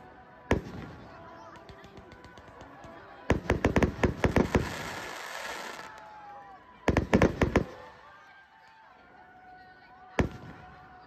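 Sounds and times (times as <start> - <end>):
fireworks bangs: 0.5 - 6.1, 6.9 - 7.9.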